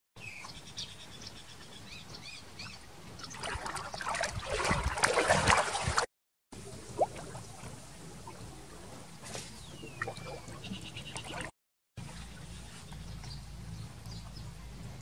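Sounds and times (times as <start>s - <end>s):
water splashing and sloshing: 2.9s - 13.1s.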